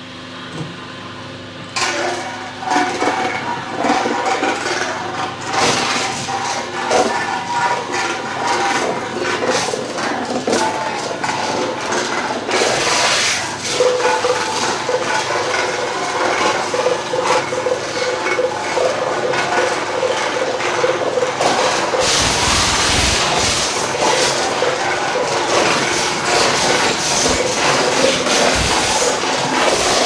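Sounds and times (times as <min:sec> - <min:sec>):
shredder crunching plastic and cans: 0:01.8 - 0:30.0.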